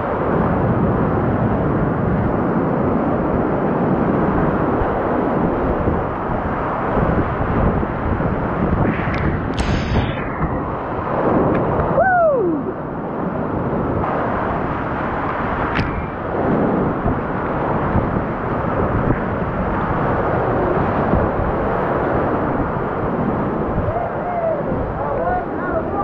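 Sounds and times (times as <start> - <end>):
whitewater rapids rushing: 17.3 - 26.0.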